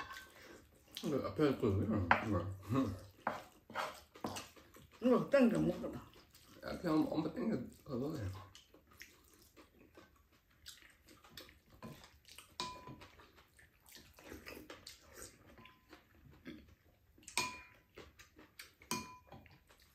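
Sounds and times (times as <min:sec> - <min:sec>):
wooden spoons scraping dishes: 0:00.0 - 0:00.5, 0:01.9 - 0:04.6, 0:12.6 - 0:13.0
chewing and mouth smacks: 0:02.9 - 0:06.8, 0:07.6 - 0:19.9.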